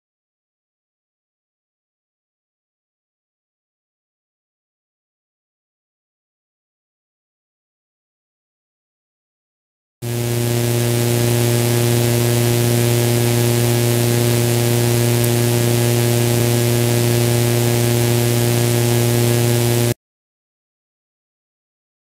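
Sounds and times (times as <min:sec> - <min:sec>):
low electrical hum: 0:10.0 - 0:20.0.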